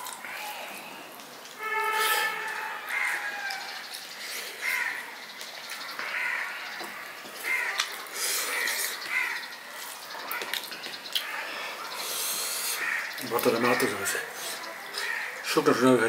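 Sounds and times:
crow cawing: 0:01.6 - 0:11.9, 0:12.6 - 0:14.3, 0:14.9 - 0:15.8.

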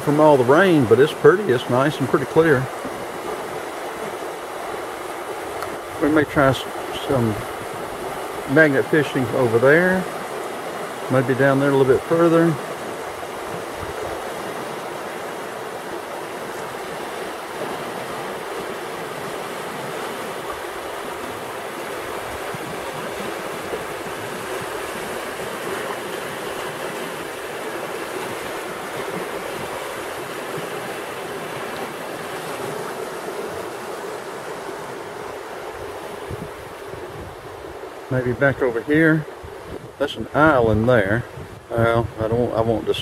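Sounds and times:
river water rushing over rocks: 0:00.0 - 0:40.3.

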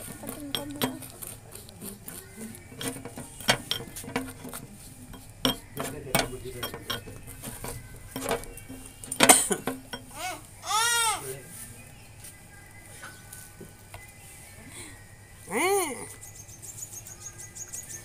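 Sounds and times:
toothbrush scraping paste in bowl: 0:00.0 - 0:10.1
brush tapping glass bowl: 0:00.0 - 0:10.2.

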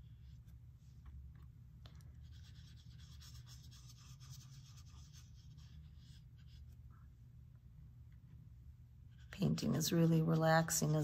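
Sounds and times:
low steady hum: 0:00.0 - 0:11.0
paintbrush stroking paper: 0:02.2 - 0:06.9.

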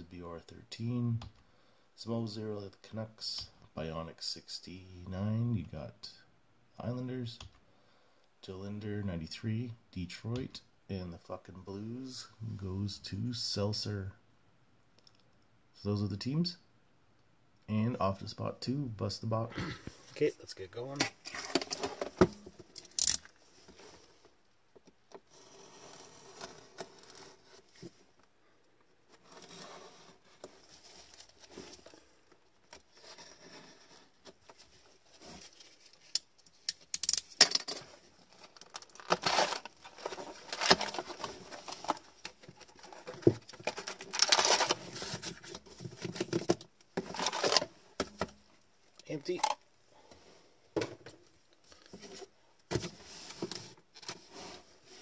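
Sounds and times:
plastic wrap tearing and crinkling: 0:38.3 - 0:42.0, 0:43.7 - 0:44.9
foil packs handled: 0:38.3 - 0:45.3.

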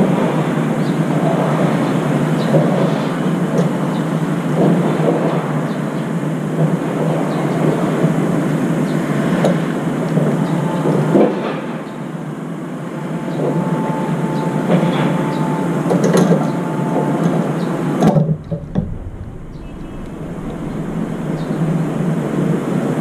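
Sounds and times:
urban background rumble: 0:14.2 - 0:23.0
deep rumble: 0:17.6 - 0:23.0.

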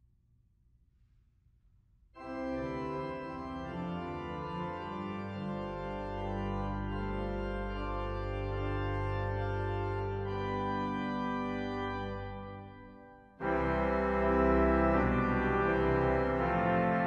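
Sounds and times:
deep organ bass note: 0:02.2 - 0:17.0
organ chords: 0:02.2 - 0:17.0.

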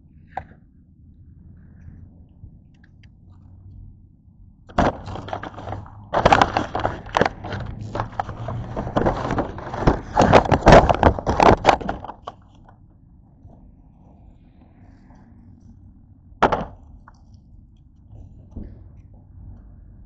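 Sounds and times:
plastic packaging crinkling: 0:04.7 - 0:12.3.

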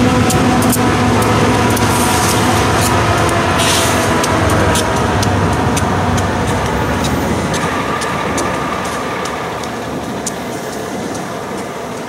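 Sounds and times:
diesel locomotive engine drone: 0:00.0 - 0:12.0
wheels clicking over rails: 0:00.0 - 0:12.0.

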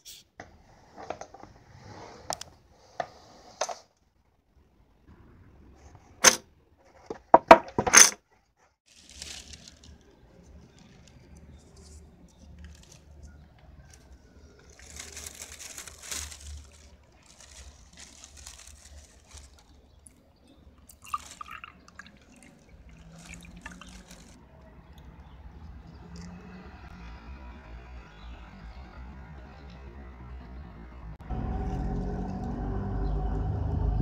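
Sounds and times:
tea pouring into glass: 0:20.9 - 0:24.4.

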